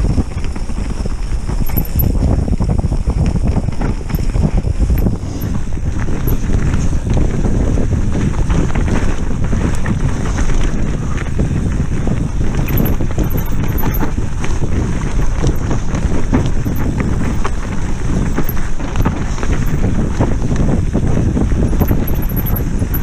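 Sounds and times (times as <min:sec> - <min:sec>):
wind buffeting microphone: 0:00.0 - 0:23.0
camera rattling in mount: 0:01.6 - 0:02.2, 0:03.8 - 0:05.6, 0:06.2 - 0:06.5, 0:12.6 - 0:19.9, 0:21.7 - 0:23.0.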